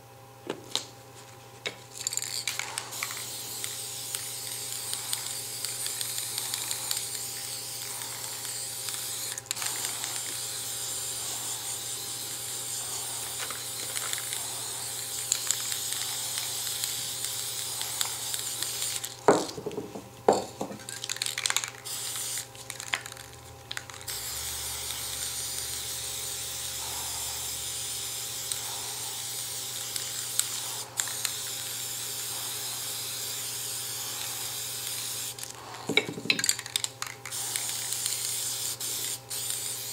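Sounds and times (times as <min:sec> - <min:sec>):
spray paint cans hissing: 0:01.7 - 0:39.9
cans knocking and clattering: 0:19.3 - 0:21.8, 0:35.9 - 0:37.3.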